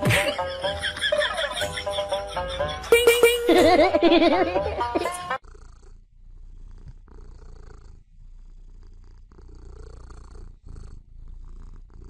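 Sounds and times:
kitten purring: 0:05.3 - 0:12.0.

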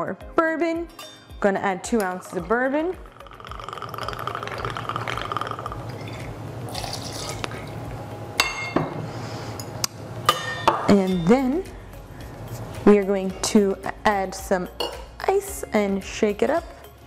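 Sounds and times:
liquid pouring into jigger: 0:03.0 - 0:07.8.

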